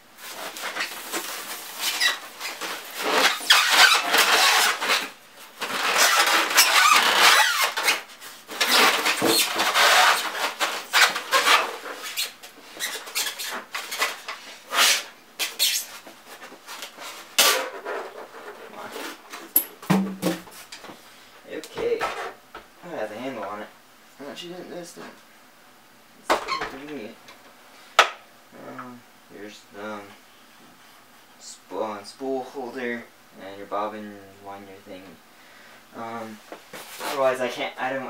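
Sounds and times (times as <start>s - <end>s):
styrofoam squeaking and scraping: 0.2s - 19.2s
foam and plastic knocks: 19.8s - 20.5s.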